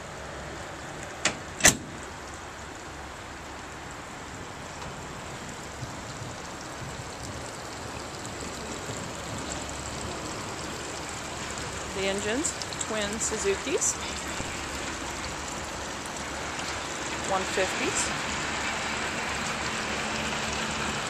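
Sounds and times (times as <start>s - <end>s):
metal panel latch clacks: 1.2s - 1.9s.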